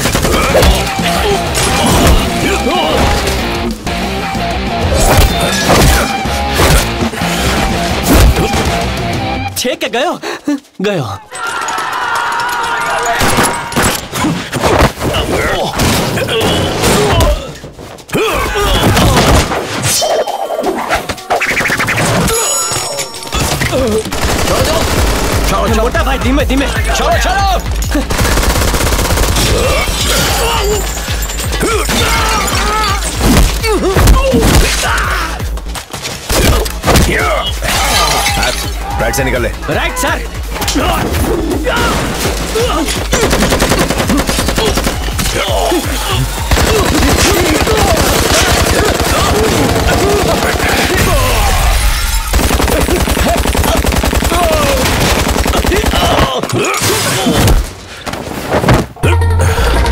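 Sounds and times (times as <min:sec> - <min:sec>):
action film score: 0:00.0 - 0:59.9
automatic gunfire: 0:24.1 - 0:25.8, 0:43.1 - 0:45.2, 0:46.5 - 0:51.0, 0:52.3 - 0:56.2
smashing and shattering impacts: 0:41.0 - 0:57.8.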